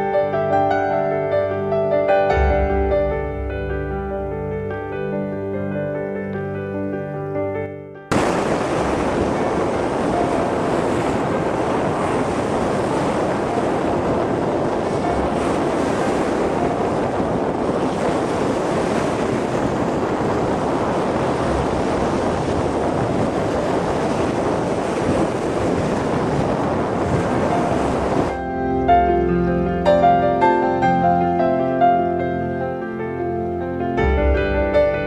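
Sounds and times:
wind buffeting microphone: 0:02.3 - 0:05.4, 0:08.1 - 0:31.5
waves washing up a beach: 0:08.1 - 0:31.6.

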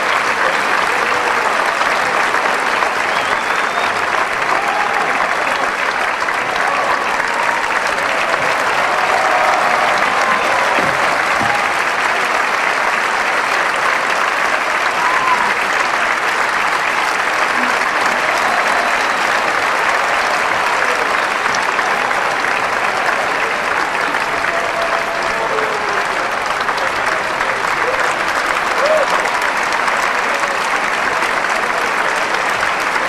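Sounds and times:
audience applauding: 0:00.0 - 0:33.0.

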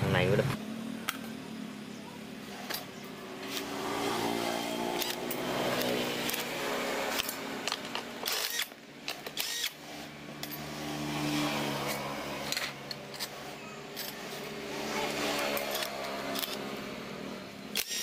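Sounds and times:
cordless drill whirring: 0:03.4 - 0:16.8, 0:17.7 - 0:18.0
clicks and knocks of parts: 0:05.0 - 0:09.8, 0:11.8 - 0:14.5, 0:15.3 - 0:16.8, 0:17.7 - 0:18.0.

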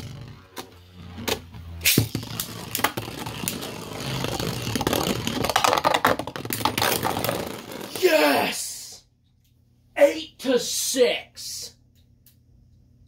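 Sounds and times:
spinning tops whirring: 0:00.0 - 0:08.0.

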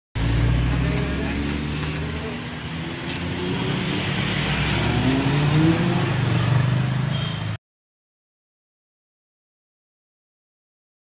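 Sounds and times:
vehicle engine accelerating: 0:00.2 - 0:07.1.

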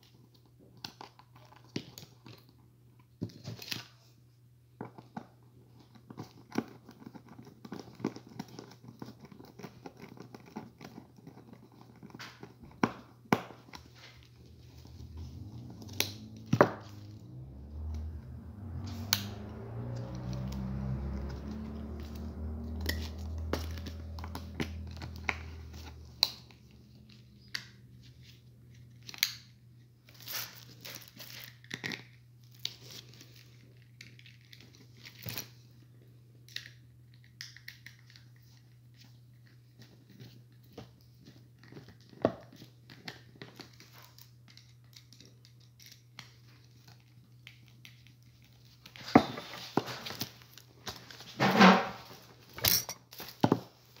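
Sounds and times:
low rumble: 0:14.2 - 0:27.4.

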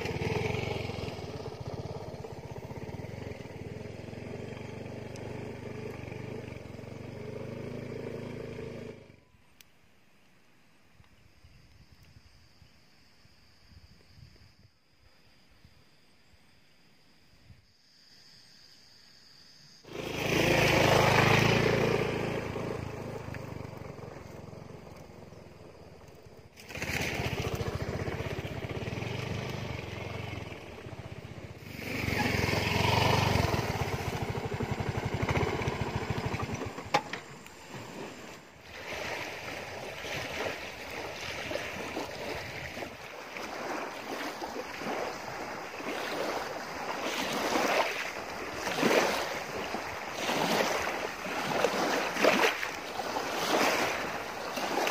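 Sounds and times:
small waves lapping: 0:00.0 - 0:09.0, 0:19.9 - 0:54.9
scooter engine running: 0:00.0 - 0:09.2, 0:19.9 - 0:37.4
wind: 0:00.0 - 0:54.9.

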